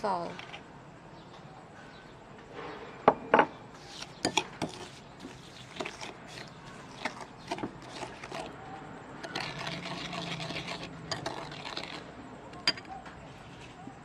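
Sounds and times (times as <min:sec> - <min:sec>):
metal spoon scraping ceramic bowl: 0:03.8 - 0:08.6, 0:09.2 - 0:12.9.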